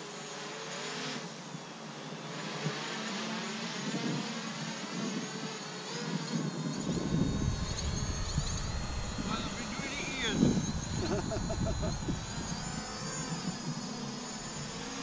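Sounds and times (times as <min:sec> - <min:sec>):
drone propellers humming: 0:00.0 - 0:15.0
low wind rumble: 0:06.4 - 0:14.8.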